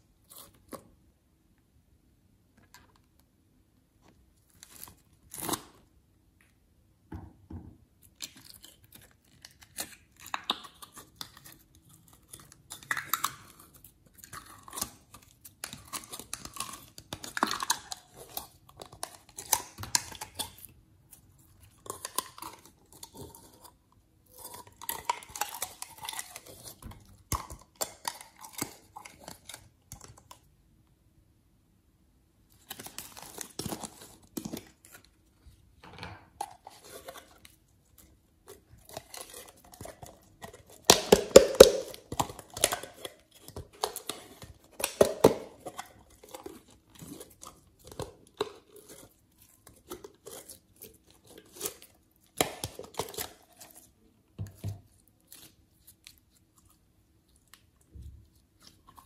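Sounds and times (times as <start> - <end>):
slime squelching and popping: 38.5 - 59.0.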